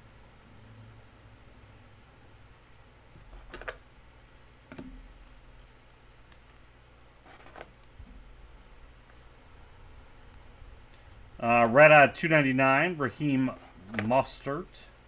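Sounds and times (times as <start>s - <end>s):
low room hum: 0.0s - 15.0s
trading cards sliding: 2.5s - 4.0s, 5.3s - 11.1s.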